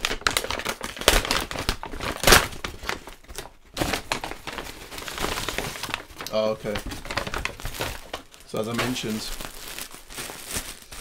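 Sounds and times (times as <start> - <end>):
paper bag rustling and crackling: 0.0 - 11.0
plastic wrap crinkling: 0.0 - 11.0.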